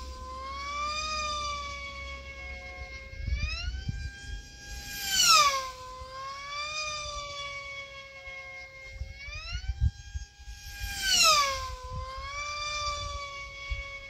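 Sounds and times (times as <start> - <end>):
model plane motor whine: 0.0 - 14.0.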